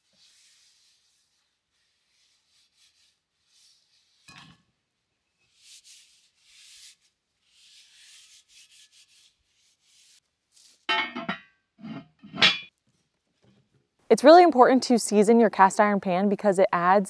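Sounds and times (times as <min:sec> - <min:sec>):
paper towel swishing on a pan: 0:00.0 - 0:04.3, 0:05.4 - 0:10.9.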